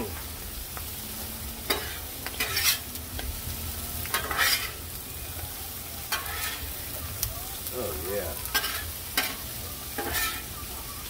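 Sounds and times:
vegetables sizzling on a griddle: 0.0 - 11.0
metal spatula scraping steel: 1.6 - 2.9, 4.1 - 4.8, 6.1 - 6.7, 8.5 - 10.6.

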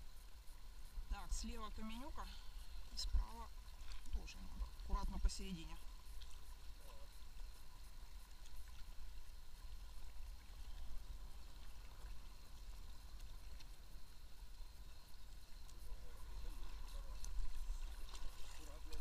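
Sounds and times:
faint ticks: 0.0 - 19.0
river water flowing: 0.0 - 19.0.

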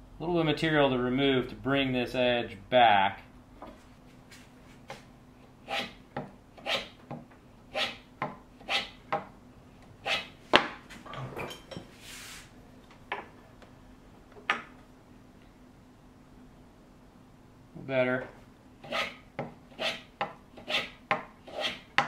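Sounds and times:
hand plane shaving wood: 18.8 - 19.2, 19.8 - 21.9.

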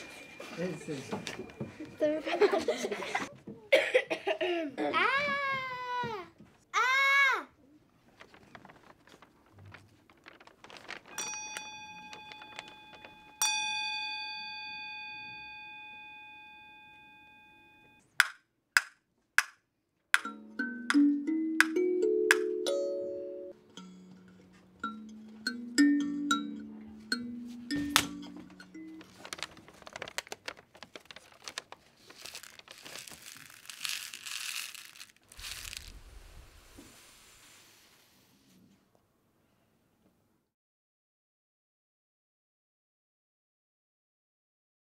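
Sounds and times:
bell-like ringing tone: 0.0 - 2.0, 11.3 - 18.0
paper crumpling and crinkling: 8.0 - 13.3, 28.0 - 36.9.

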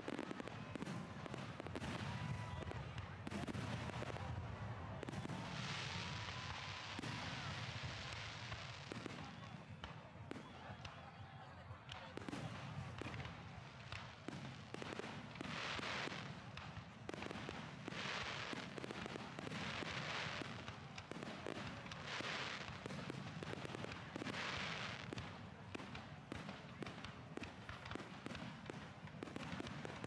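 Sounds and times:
fireworks bangs and cracks: 0.0 - 30.0
fireworks crackling hiss: 5.0 - 9.3, 12.2 - 30.0.

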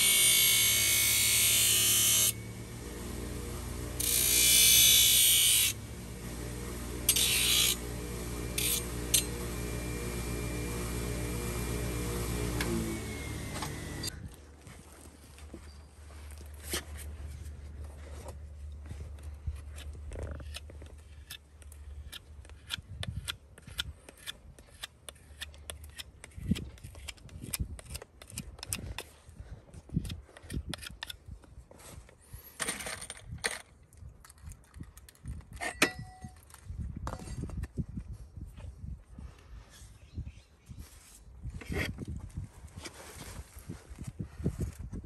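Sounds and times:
low steady hum: 0.0 - 22.1.

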